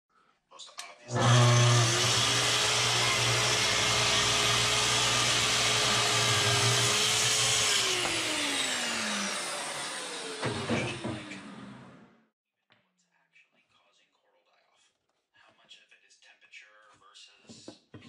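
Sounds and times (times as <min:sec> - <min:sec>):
track saw running: 0:01.1 - 0:12.2.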